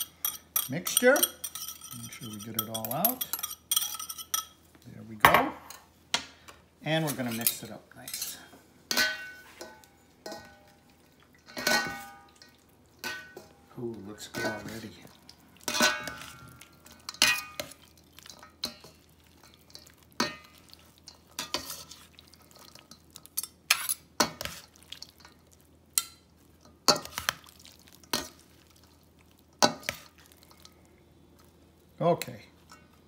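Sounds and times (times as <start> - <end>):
metal spoons clinking in bowl: 0.0 - 4.6, 7.3 - 10.7, 11.4 - 13.6, 15.6 - 25.4.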